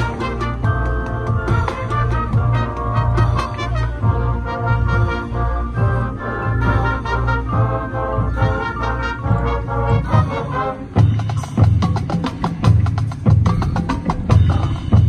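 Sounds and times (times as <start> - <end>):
brass chords: 0.0 - 15.0
drum strikes: 11.0 - 15.0.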